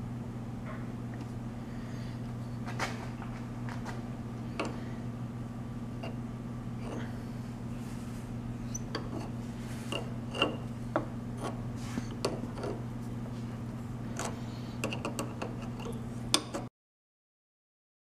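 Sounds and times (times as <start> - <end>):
steady low hum: 0.0 - 16.7
tap clicking and creaking: 4.6 - 4.8.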